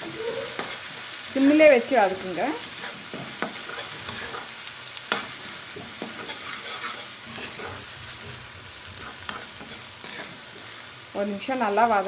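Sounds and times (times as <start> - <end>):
onions sizzling in a pan: 0.0 - 12.0
spatula scraping and knocking pan: 2.7 - 10.7.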